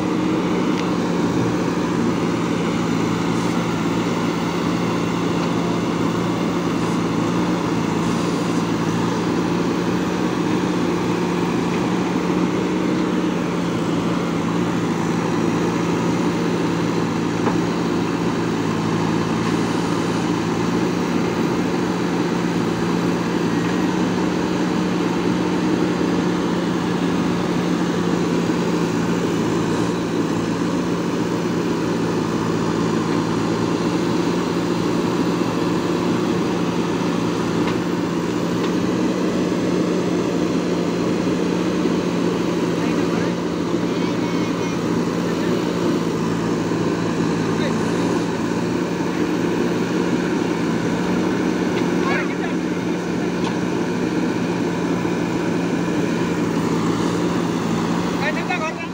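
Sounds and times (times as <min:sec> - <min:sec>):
backhoe digging wet soil: 0:00.0 - 0:58.9
diesel engine running: 0:00.0 - 0:58.9.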